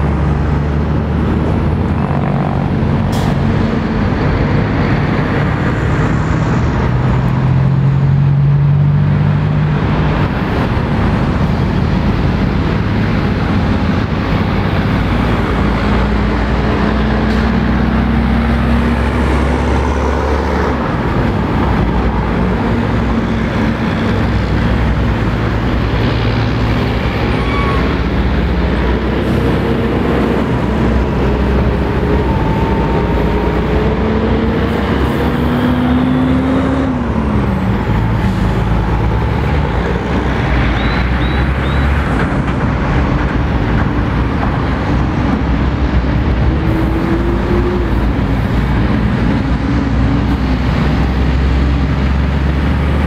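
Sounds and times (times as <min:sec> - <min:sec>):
truck engines passing: 0:00.0 - 0:53.0.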